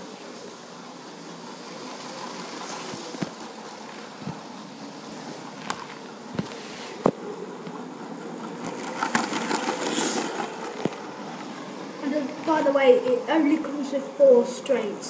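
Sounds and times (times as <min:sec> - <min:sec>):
toy train motor whirring: 0:00.8 - 0:04.6, 0:07.8 - 0:13.5.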